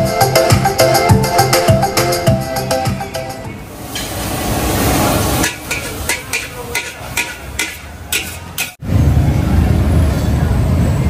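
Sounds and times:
frying hiss: 0:03.7 - 0:08.8
metal ladle clanking on wok: 0:05.4 - 0:08.8.

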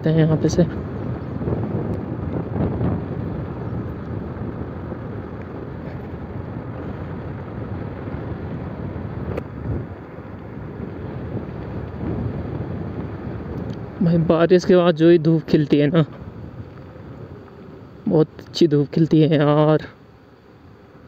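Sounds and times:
tyre noise on asphalt: 0:00.0 - 0:18.7
wind rushing on microphone: 0:00.0 - 0:19.8.

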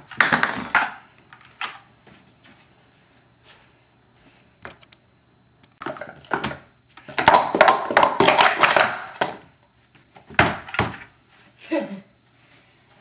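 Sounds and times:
plastic cups clattering: 0:00.1 - 0:01.0, 0:05.8 - 0:09.5.

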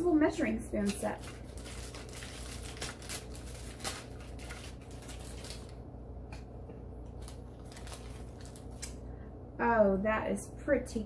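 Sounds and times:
steady low hum: 0:00.0 - 0:11.0
packaging rustling: 0:00.8 - 0:05.8, 0:07.1 - 0:09.0.

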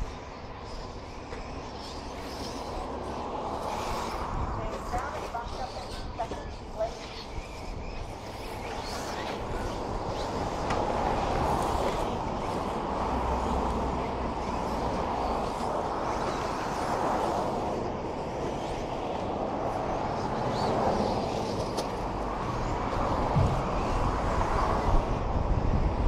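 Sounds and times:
radio-controlled trucks racing: 0:00.0 - 0:26.0.

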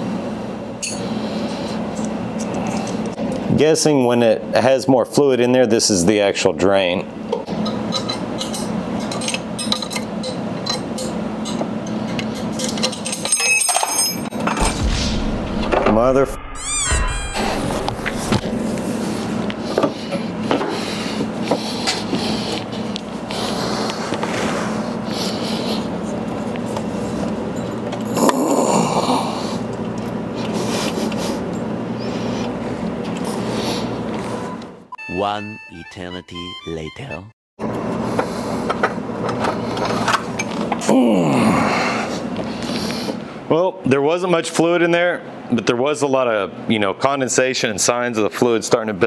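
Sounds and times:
steady low hum: 0:14.3 - 0:36.1.

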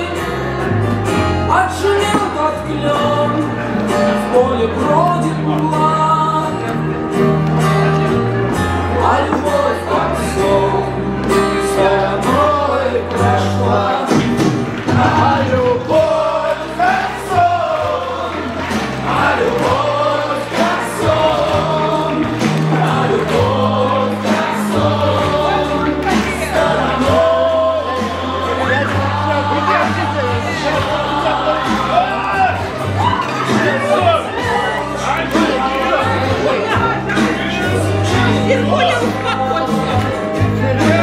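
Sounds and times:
people singing: 0:00.0 - 0:07.0, 0:08.6 - 0:41.0.

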